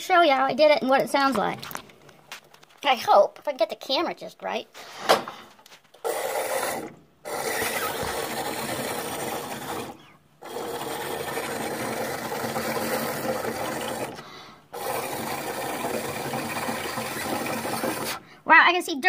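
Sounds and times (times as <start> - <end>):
air bubbling through water in tube: 6.1 - 14.2.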